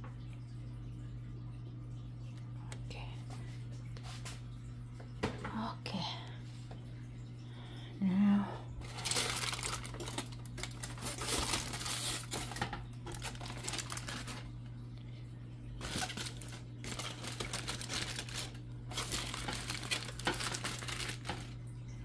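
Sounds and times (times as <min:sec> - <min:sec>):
aluminium foil crinkling: 0:08.8 - 0:14.6, 0:15.8 - 0:21.6.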